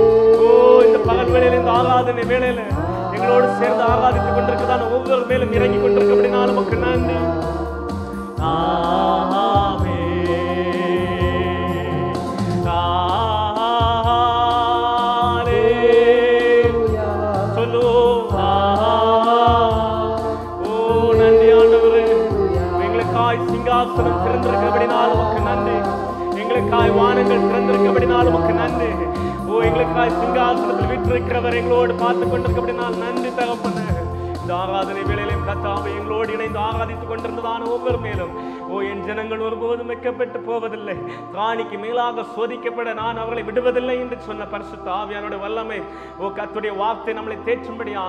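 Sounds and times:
bass notes: 0:00.0 - 0:38.4
keyboard: 0:00.0 - 0:48.0
person singing with vibrato: 0:00.0 - 0:48.0.

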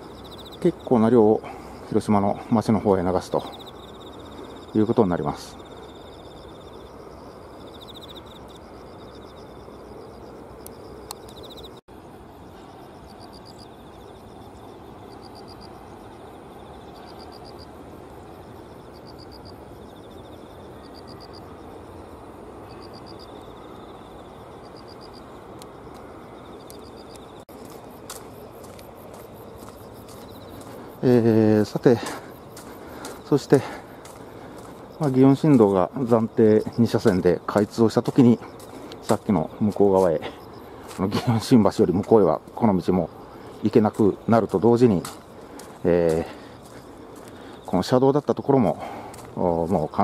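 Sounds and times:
insects chirping: 0:00.0 - 0:50.0
outdoor hiss: 0:20.6 - 0:50.0.

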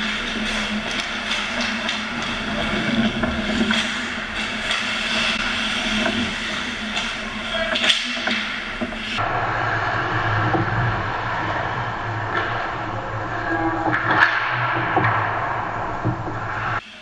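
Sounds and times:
hockey sticks and puck clacking: 0:00.0 - 0:09.2, 0:12.2 - 0:16.8
skate blades scraping ice: 0:00.0 - 0:09.2
steady low hum: 0:00.0 - 0:16.8.

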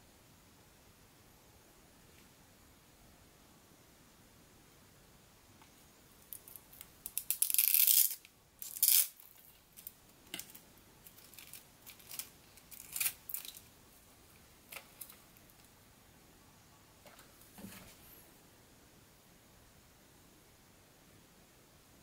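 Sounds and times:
hands handling plastic parts: 0:06.3 - 0:13.7, 0:14.7 - 0:15.7.

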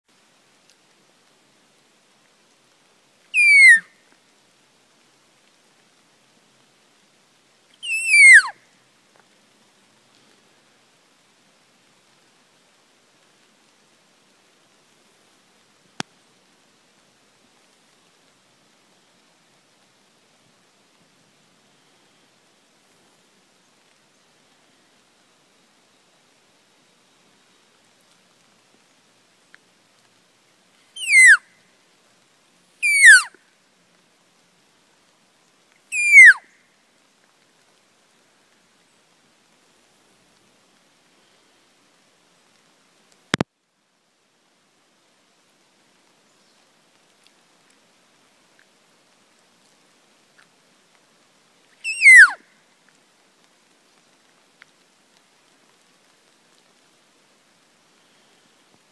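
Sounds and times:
elk mew call whistle: 0:03.3 - 0:03.9, 0:07.8 - 0:08.5, 0:31.0 - 0:31.4, 0:32.8 - 0:33.3, 0:35.9 - 0:36.4, 0:51.8 - 0:52.4.

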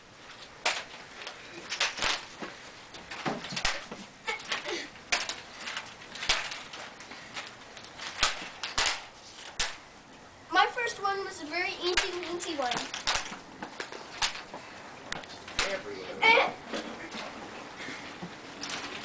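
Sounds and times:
plastic eggs clicking: 0:03.1 - 0:09.8.

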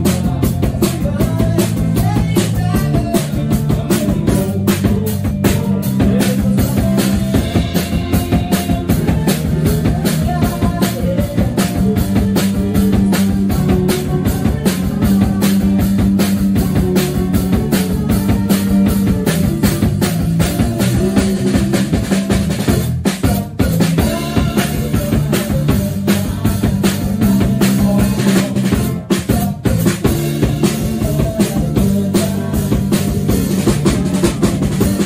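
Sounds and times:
drum-kit beat: 0:00.0 - 0:35.0
guitars: 0:00.0 - 0:35.0
man singing: 0:00.0 - 0:35.0
piano: 0:00.0 - 0:35.0.

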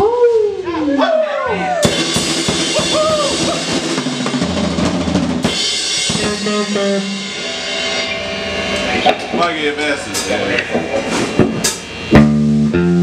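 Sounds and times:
drum kit: 0:01.7 - 0:13.0
sustained electric guitar notes: 0:06.0 - 0:13.0.

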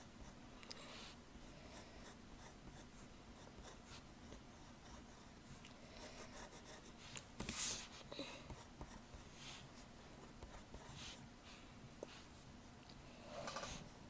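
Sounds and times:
pencil scratching on paper: 0:01.7 - 0:05.3, 0:06.0 - 0:11.2.

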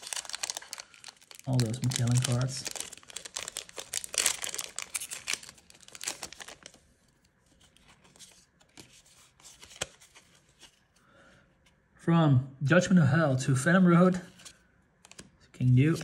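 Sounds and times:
plastic wrapper crinkling and tearing: 0:00.0 - 0:10.2
cards rustling: 0:00.0 - 0:10.9.

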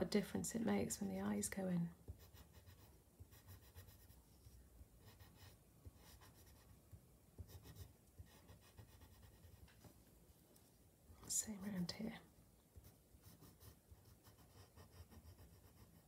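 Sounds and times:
pencil scratching on paper: 0:02.1 - 0:06.8, 0:07.4 - 0:09.8, 0:12.8 - 0:16.0.

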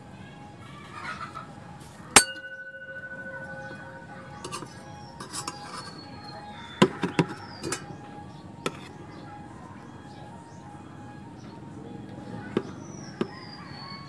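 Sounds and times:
metal object struck ringing: 0:02.2 - 0:06.0
light metal clinks: 0:02.2 - 0:06.2.

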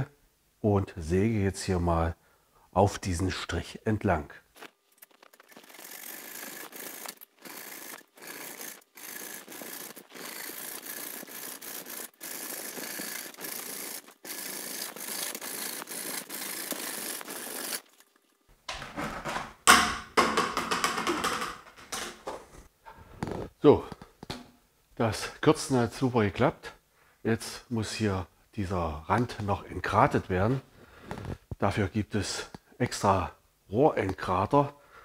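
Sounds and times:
hacksaw rasping through plastic pipe: 0:05.5 - 0:17.8
loud knock and clatter: 0:18.7 - 0:22.5.

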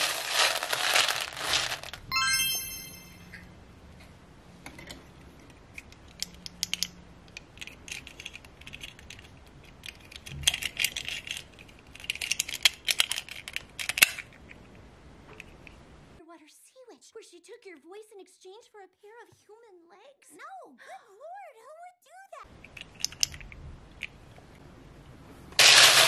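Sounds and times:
plastic beads rattling: 0:00.0 - 0:02.7, 0:07.6 - 0:14.3, 0:25.6 - 0:26.0.

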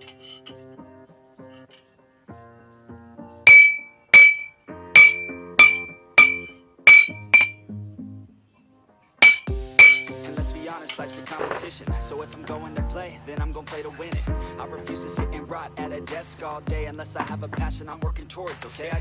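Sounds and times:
background music: 0:00.0 - 0:19.0
hammer striking metal on anvil: 0:03.5 - 0:07.6, 0:09.2 - 0:10.2.

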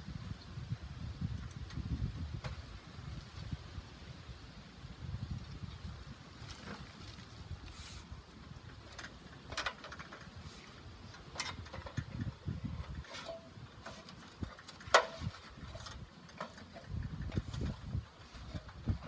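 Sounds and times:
wind on microphone: 0:00.0 - 0:09.0, 0:10.3 - 0:19.0
ladder knocks and clanks: 0:11.2 - 0:19.0.

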